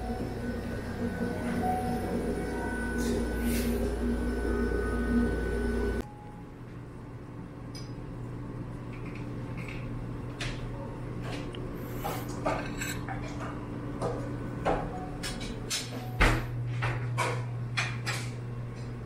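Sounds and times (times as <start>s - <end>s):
steady low hum: 0.0s - 19.0s
dishes and cutlery clinking: 11.9s - 13.5s.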